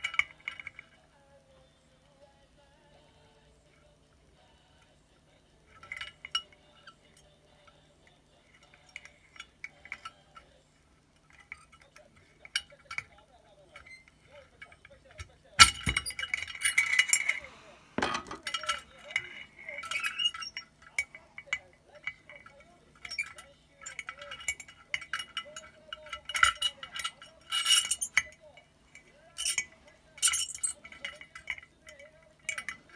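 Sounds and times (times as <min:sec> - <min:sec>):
plastic parts clicking against glass: 0:00.0 - 0:01.0, 0:11.2 - 0:32.9
scraping rattle: 0:05.7 - 0:32.9.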